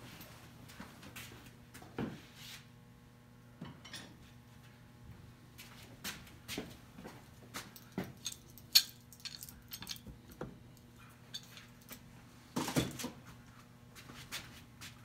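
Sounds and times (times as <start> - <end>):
low electrical hum: 0.0 - 15.0
metal items clinking on workbench: 7.8 - 10.1, 11.3 - 12.0.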